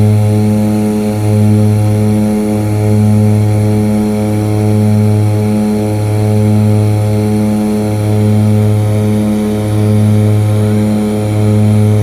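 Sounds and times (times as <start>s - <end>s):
turboprop engine droning: 0.0s - 12.0s.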